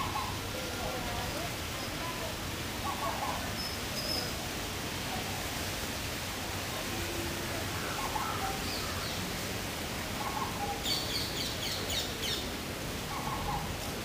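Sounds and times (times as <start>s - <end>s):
background hiss: 0.0s - 14.0s
faint bird calls: 13.1s - 13.8s.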